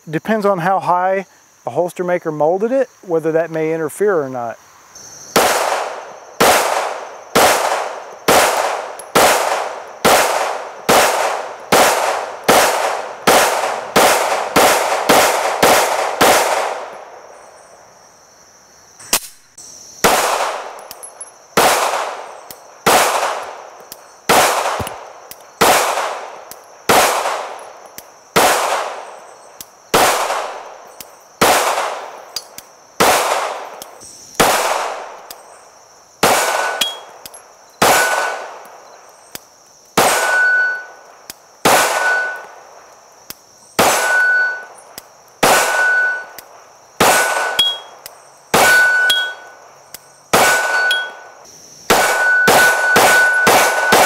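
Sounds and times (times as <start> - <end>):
pistol shots: 5.4 - 17.2, 20.0 - 23.7, 24.3 - 27.7, 28.4 - 29.2, 29.9 - 30.7, 31.4 - 35.2, 36.2 - 37.1, 37.8 - 38.7, 40.0 - 40.9, 41.6 - 42.5, 43.8 - 44.7, 45.4 - 46.4, 47.0 - 49.5, 50.3 - 51.3, 51.9 - 54.0
steel target clanging: 36.6 - 37.1, 47.1 - 47.9, 48.6 - 49.5, 50.6 - 51.3.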